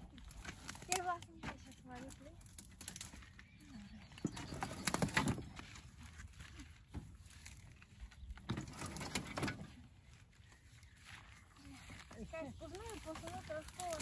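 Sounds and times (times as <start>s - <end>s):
tall grass rustling: 4.6s - 14.0s.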